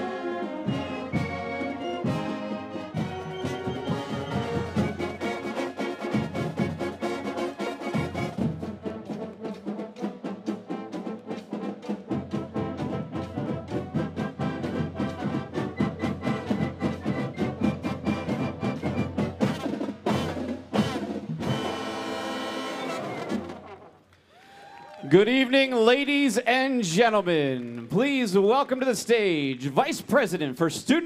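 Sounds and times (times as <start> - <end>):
marching band playing: 0.0 - 24.0.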